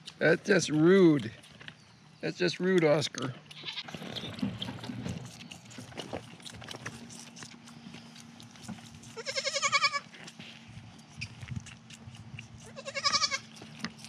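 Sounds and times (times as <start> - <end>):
baby goat bleating: 3.5 - 3.9, 9.0 - 10.1, 12.6 - 13.6.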